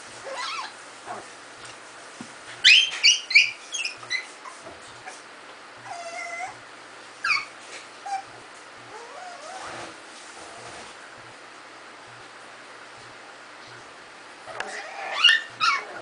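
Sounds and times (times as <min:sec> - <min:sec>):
puppies yipping and yelping: 0:00.2 - 0:00.8, 0:02.6 - 0:05.2, 0:05.8 - 0:06.6, 0:07.2 - 0:09.7, 0:14.6 - 0:16.0
puppy whining: 0:00.2 - 0:01.2, 0:02.6 - 0:06.6, 0:07.2 - 0:10.8, 0:14.5 - 0:16.0.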